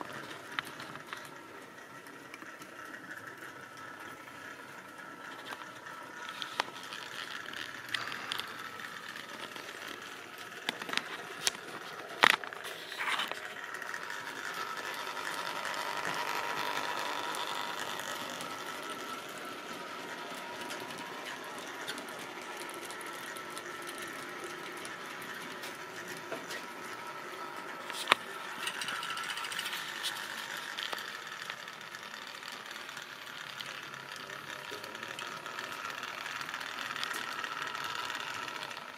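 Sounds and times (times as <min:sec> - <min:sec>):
small electric motor hum: 0:00.0 - 0:38.9
wagon wheels rattling on rails: 0:13.4 - 0:38.9.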